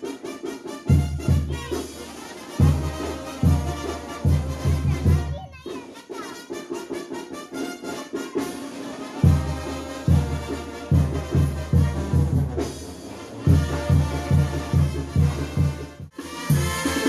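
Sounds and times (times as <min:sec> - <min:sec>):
drums: 0:00.0 - 0:17.0
trumpets: 0:00.0 - 0:17.0
tuba bass line: 0:09.3 - 0:17.0.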